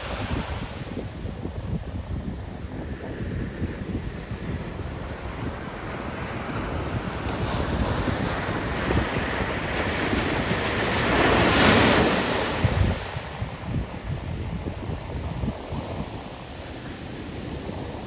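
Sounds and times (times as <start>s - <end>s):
ocean waves crashing on beach: 0.0s - 18.0s
wind buffeting microphone: 0.0s - 18.0s.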